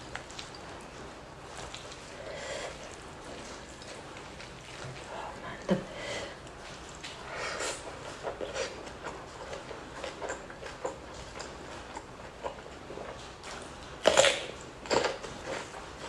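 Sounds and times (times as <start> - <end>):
wet chewing: 0.0 - 16.0
crisp cucumber crunch: 6.4 - 16.0.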